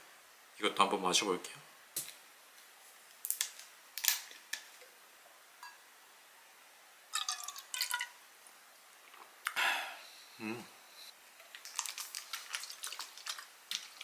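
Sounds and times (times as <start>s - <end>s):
liquid glugging and splashing into cup: 7.2s - 8.1s, 11.4s - 14.0s.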